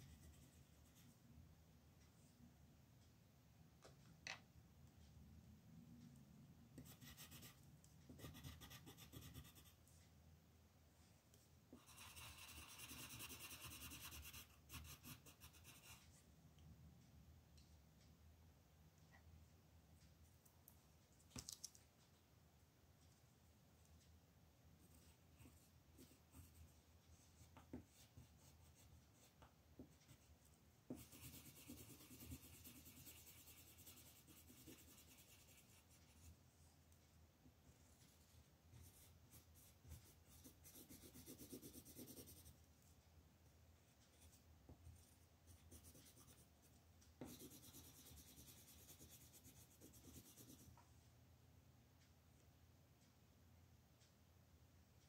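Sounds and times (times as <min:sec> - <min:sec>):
pencil ticks and taps: 0:06.7 - 0:09.8, 0:11.3 - 0:16.7, 0:24.8 - 0:36.3, 0:45.5 - 0:50.9
pencil scratching on paper: 0:06.8 - 0:09.8, 0:11.7 - 0:16.2, 0:24.8 - 0:36.3, 0:38.7 - 0:42.6, 0:45.5 - 0:46.5, 0:47.2 - 0:50.7.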